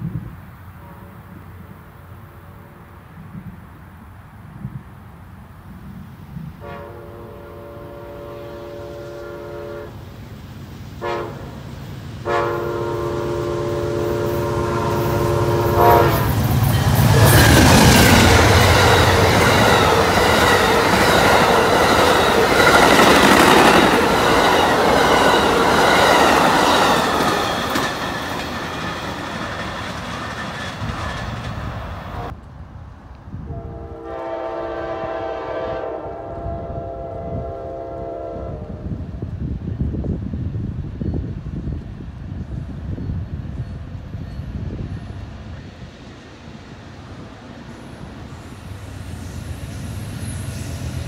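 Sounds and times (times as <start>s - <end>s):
train rolling over rails: 0.0s - 32.4s, 38.8s - 51.0s
train horn blasts: 0.8s - 1.8s, 6.6s - 10.1s, 11.0s - 11.6s, 12.2s - 23.9s, 33.4s - 39.1s.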